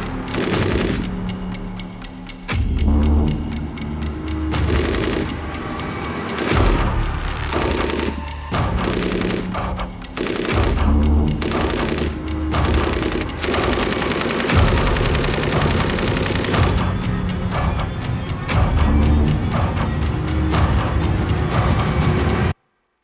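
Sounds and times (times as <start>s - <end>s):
machine gun firing bursts: 0.3s - 1.3s, 4.6s - 5.4s, 6.4s - 16.9s.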